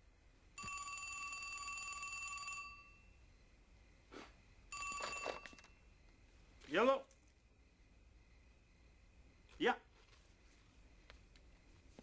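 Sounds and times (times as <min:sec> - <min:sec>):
landline telephone ringing: 0:00.6 - 0:03.1, 0:04.7 - 0:05.8.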